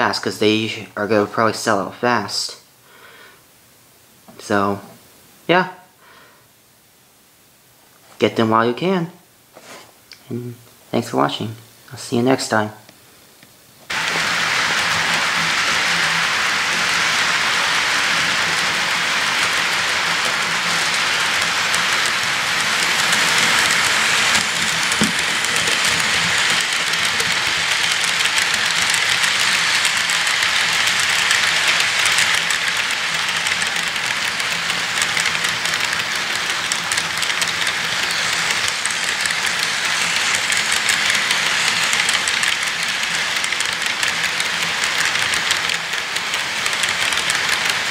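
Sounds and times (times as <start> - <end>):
model train wheels rattling: 13.8 - 47.9.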